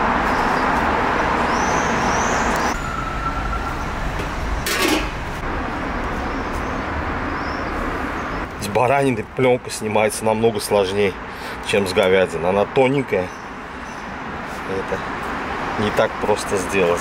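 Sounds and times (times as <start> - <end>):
street traffic noise: 0.0 - 17.0
small birds chirping: 1.4 - 2.8, 6.2 - 9.2, 11.3 - 15.1.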